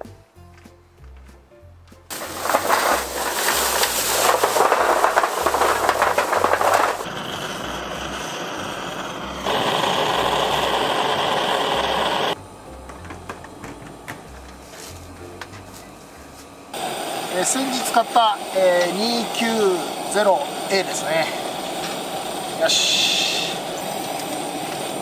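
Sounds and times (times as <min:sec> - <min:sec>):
charcoal pouring into metal grill: 0:02.1 - 0:07.1
gas torch hissing: 0:02.1 - 0:25.0.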